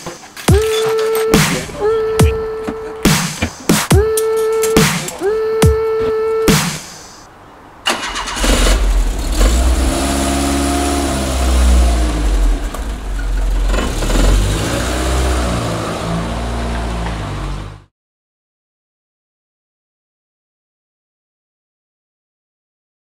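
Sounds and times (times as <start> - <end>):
car engine starting and revving: 7.8 - 17.9.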